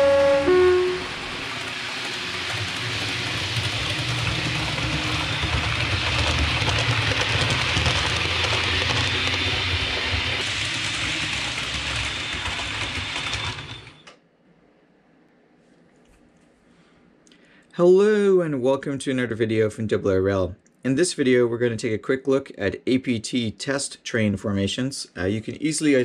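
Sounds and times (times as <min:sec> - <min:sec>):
wheels rumbling and hissing: 0:00.0 - 0:14.0
model train motor hum: 0:00.0 - 0:14.1.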